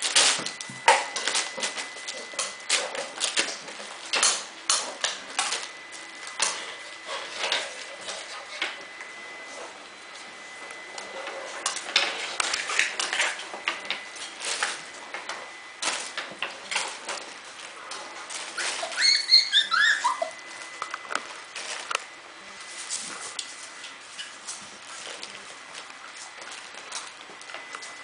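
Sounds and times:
puppy squeals: 18.5s - 20.6s.

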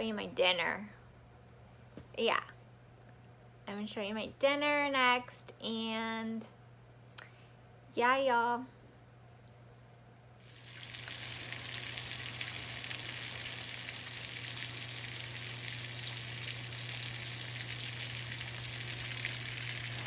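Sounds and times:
steaks sizzling in a pan: 10.5s - 20.0s.

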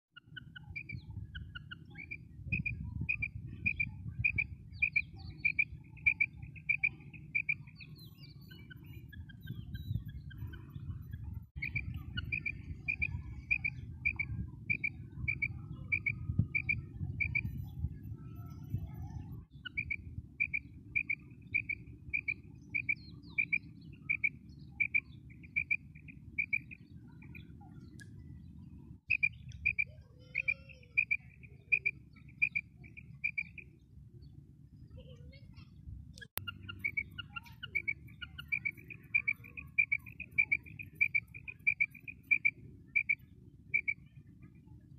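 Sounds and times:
low wind rumble: 0.2s - 44.9s
quail calling: 11.6s - 17.5s, 29.1s - 33.6s, 36.4s - 43.2s.

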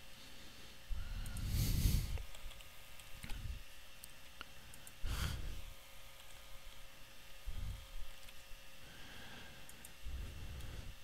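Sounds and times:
keyboard and mouse clicks: 2.2s - 3.4s, 6.2s - 6.8s, 8.1s - 8.4s.

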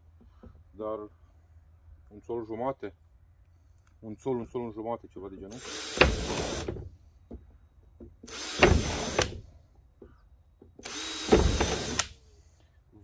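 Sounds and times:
power drill boring plastic pipe: 5.5s - 6.8s, 8.3s - 9.4s, 10.8s - 12.1s.

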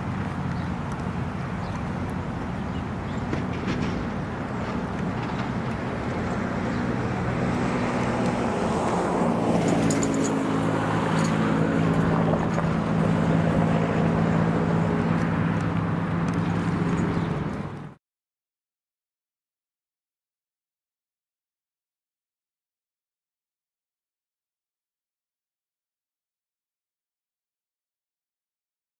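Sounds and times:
road noise: 0.0s - 18.0s
vehicle engine drone: 0.0s - 18.0s.

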